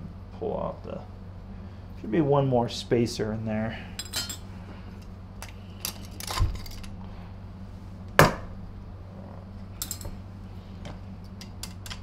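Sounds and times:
steady low hum: 0:00.0 - 0:12.0
metal clinks and knocks: 0:09.8 - 0:10.2.

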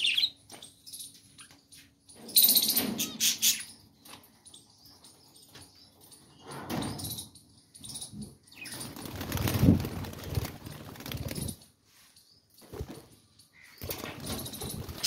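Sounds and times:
birds fluttering wings in cage: 0:06.7 - 0:11.8, 0:12.5 - 0:15.0.

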